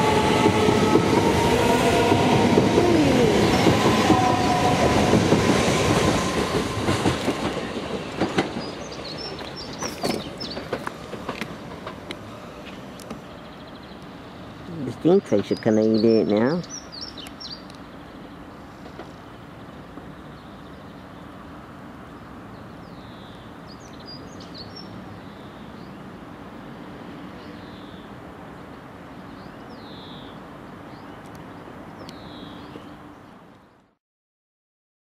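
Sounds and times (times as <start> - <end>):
electric train humming: 0.0 - 15.4
train track noise: 0.0 - 33.8
birds chirping: 0.1 - 6.5, 7.1 - 10.9, 12.6 - 26.2.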